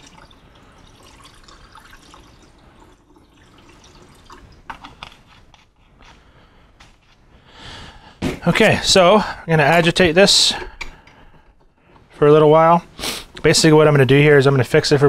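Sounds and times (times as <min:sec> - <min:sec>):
liquid trickling into funnel: 0:00.0 - 0:05.0.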